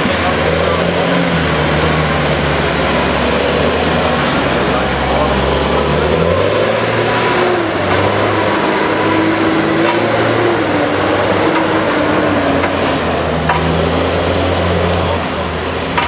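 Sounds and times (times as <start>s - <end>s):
diesel engine under load: 0.0s - 16.0s.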